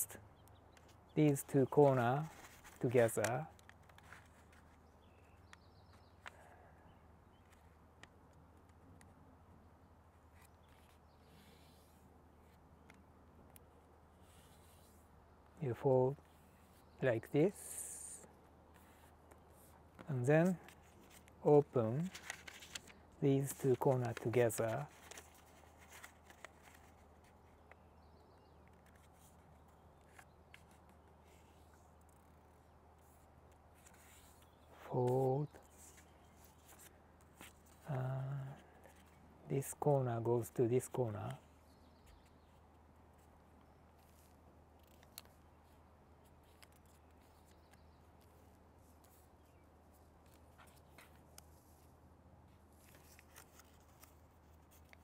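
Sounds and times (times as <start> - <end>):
paper being folded and creased: 0.8 - 5.5, 10.1 - 15.1, 18.7 - 39.2, 41.4 - 55.0.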